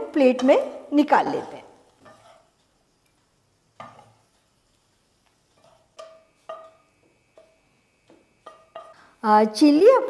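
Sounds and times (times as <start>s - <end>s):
spatula scraping frying pan: 1.2s - 2.8s, 3.8s - 9.1s.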